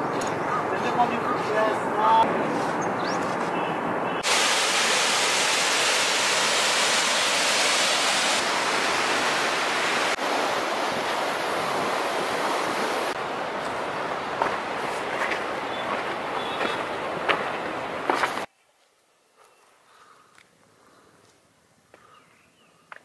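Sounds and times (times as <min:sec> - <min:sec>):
fast-flowing water rushing: 0:04.2 - 0:18.5.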